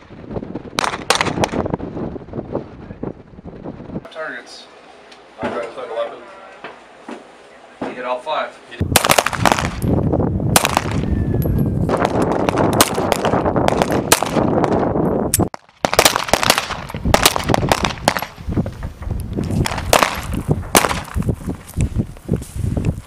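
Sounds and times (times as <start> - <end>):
pistol shots: 0.8 - 1.7, 8.9 - 9.9, 10.5 - 11.1, 11.9 - 14.8, 15.4 - 18.4, 19.6 - 21.2.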